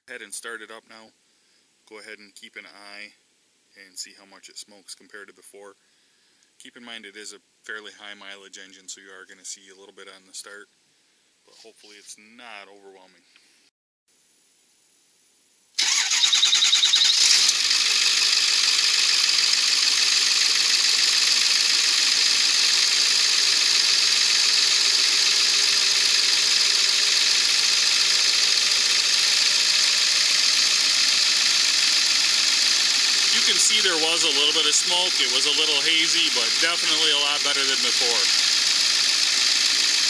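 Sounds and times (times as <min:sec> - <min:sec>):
diesel engine cranking and idling: 0:15.8 - 0:40.0.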